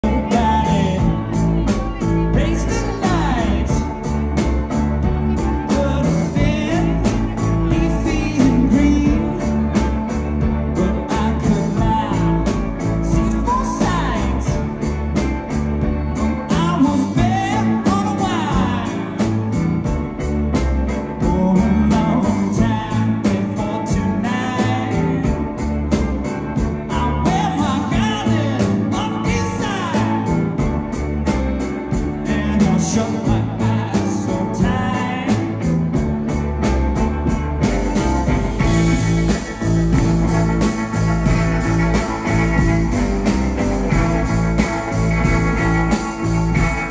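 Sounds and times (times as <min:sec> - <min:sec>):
man singing: 0:00.0 - 0:20.0, 0:20.8 - 0:36.4
electric guitar: 0:00.0 - 0:46.9
upright bass: 0:00.0 - 0:46.9.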